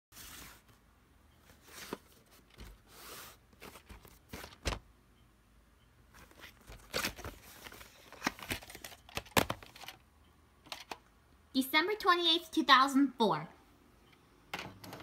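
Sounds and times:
rustling and crinkling: 0:01.4 - 0:04.8, 0:06.1 - 0:10.0.

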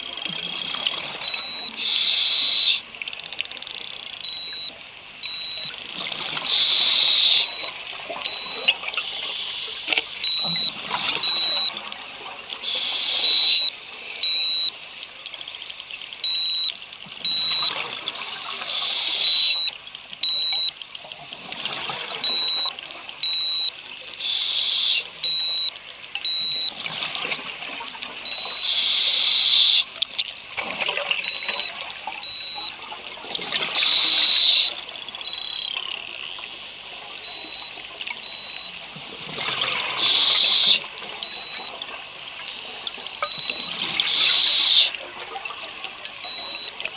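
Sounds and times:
short high alarm beeps: 0:01.2 - 0:03.0, 0:04.2 - 0:05.8, 0:06.5 - 0:08.7, 0:10.2 - 0:11.8, 0:13.1 - 0:14.8, 0:16.2 - 0:17.8, 0:19.0 - 0:20.8, 0:22.2 - 0:26.8, 0:28.2 - 0:29.8, 0:31.2 - 0:32.8, 0:33.8 - 0:35.8, 0:37.2 - 0:38.8, 0:40.0 - 0:41.8, 0:43.2 - 0:44.9, 0:46.2 - 0:46.8
regulator inhalation rushes: 0:01.8 - 0:02.8.

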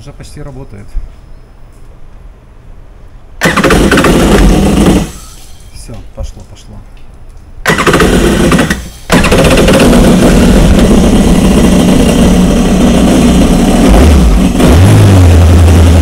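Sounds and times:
jet ski engine running: 0:07.7 - 0:16.0.

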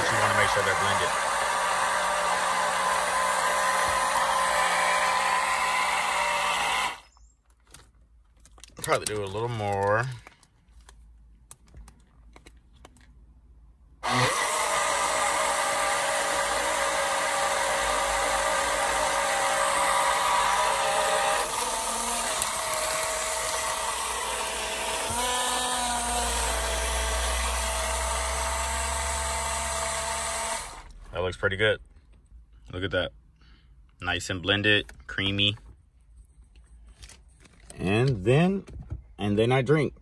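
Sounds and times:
portable blender whirring: 0:00.0 - 0:07.2, 0:14.0 - 0:31.0.

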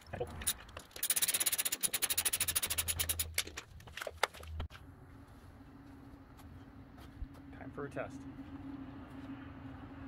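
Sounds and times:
ratchet wrench clicking: 0:00.4 - 0:03.3.

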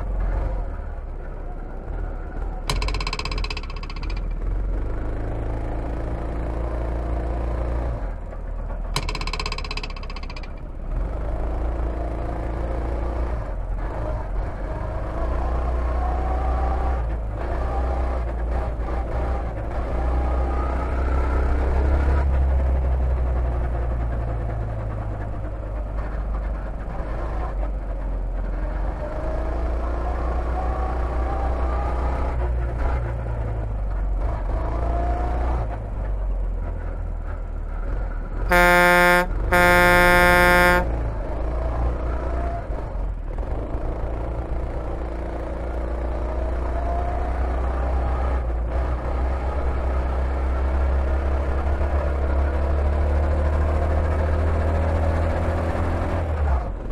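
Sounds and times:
horn blasts: 0:38.5 - 0:41.1.

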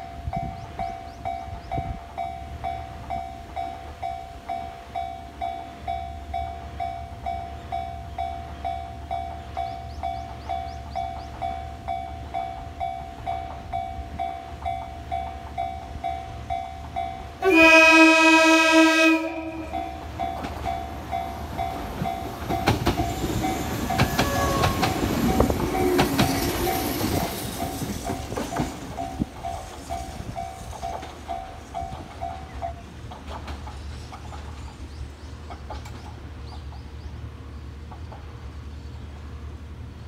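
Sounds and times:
train air horn blast: 0:17.4 - 0:19.8, 0:24.1 - 0:25.0
train wheels clattering: 0:19.6 - 0:37.1.

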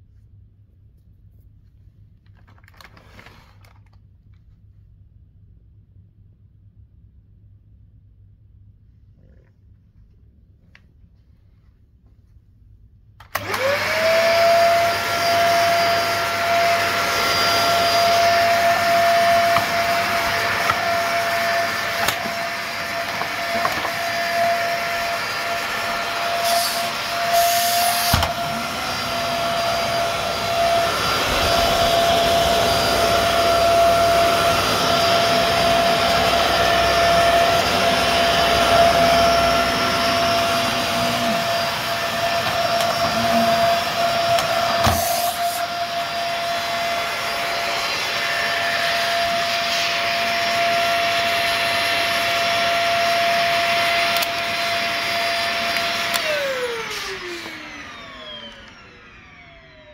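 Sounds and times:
vacuum cleaner running: 0:13.2 - 0:59.9
vacuum motor spinning down: 0:13.3 - 0:59.9.

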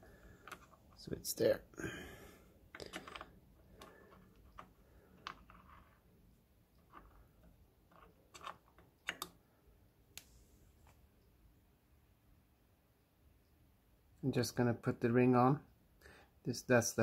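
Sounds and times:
small metal clicks and taps: 0:07.9 - 0:09.4.

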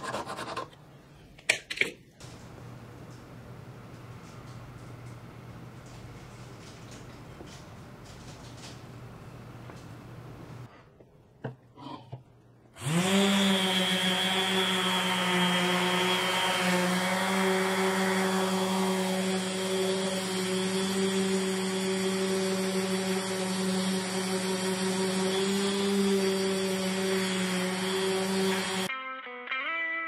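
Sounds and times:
orbital sander running: 0:12.8 - 0:28.9.

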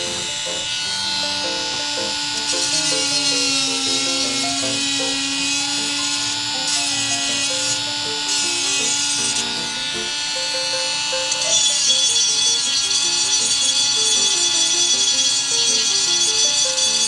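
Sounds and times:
background music: 0:00.0 - 0:11.6
rotary tool whining: 0:00.0 - 0:17.0.

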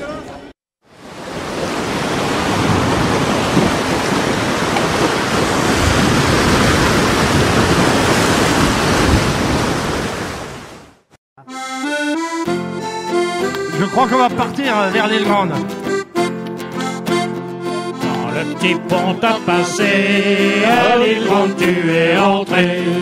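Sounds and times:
waves breaking on rocky shore: 0:00.9 - 0:11.0
accordion music: 0:11.4 - 0:23.0.

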